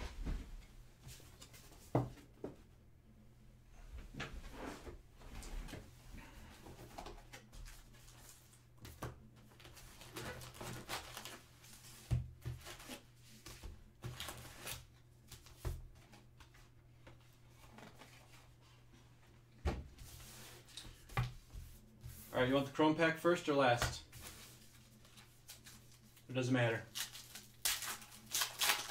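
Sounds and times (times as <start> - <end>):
wrapper crinkles: 26.9 - 28.9.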